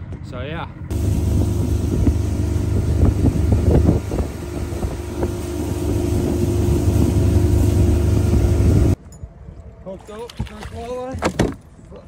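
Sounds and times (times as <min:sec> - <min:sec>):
wind noise on microphone: 0:00.0 - 0:09.8
boat engine drone: 0:00.9 - 0:09.0.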